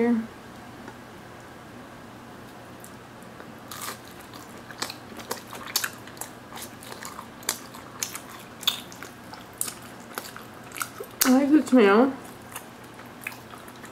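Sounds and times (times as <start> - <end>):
person chewing crispy bread: 2.8 - 11.4, 12.2 - 13.9.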